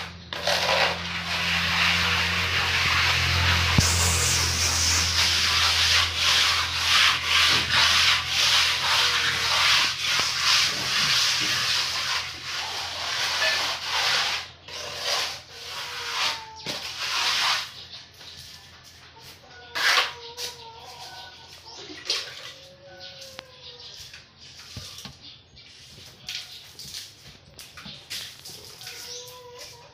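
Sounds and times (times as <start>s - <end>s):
trowel scraping wet plaster: 0.0s - 17.8s, 18.4s - 21.2s.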